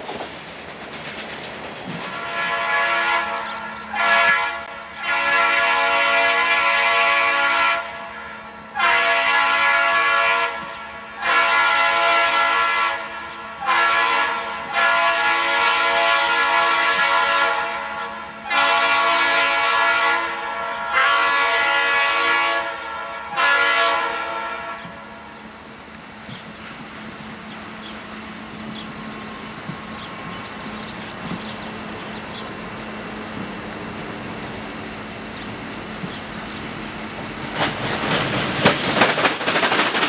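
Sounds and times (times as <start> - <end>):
locomotive air horn blasts: 2.0 - 25.3.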